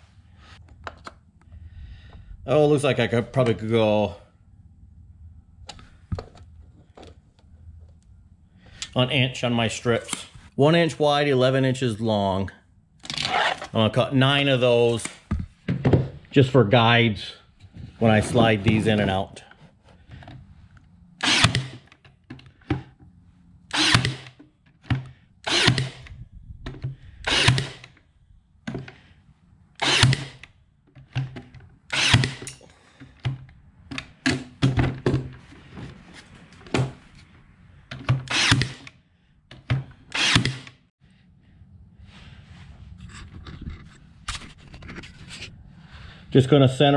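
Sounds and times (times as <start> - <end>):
nailer firing nails into wood: 21.2 - 21.9, 23.7 - 26.1, 27.3 - 28.0, 29.8 - 30.4, 31.2 - 32.5, 38.0 - 38.9, 39.6 - 40.8.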